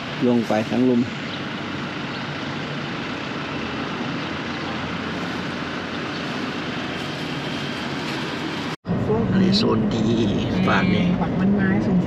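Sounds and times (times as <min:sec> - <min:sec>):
road and wind noise: 0:00.0 - 0:12.0.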